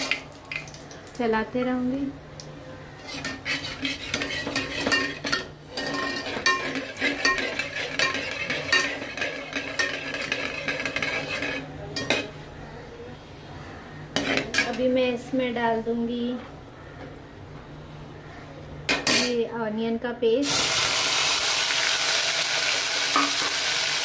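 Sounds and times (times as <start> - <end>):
metal skimmer scraping a pot: 3.0 - 11.7.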